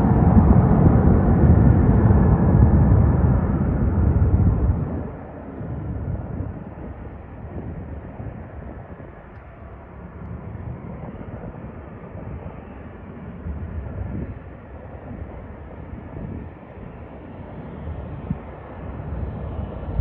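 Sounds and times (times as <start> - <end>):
jet engines rumbling: 0.0 - 20.0.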